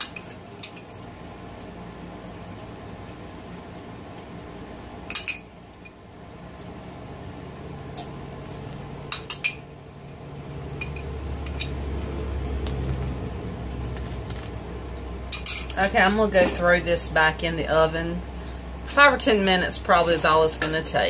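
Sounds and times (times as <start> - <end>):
steady low hum: 0.0 - 21.0
metal spoon clinking on dishes: 5.1 - 6.0, 9.1 - 9.7, 10.8 - 11.8, 15.3 - 16.6.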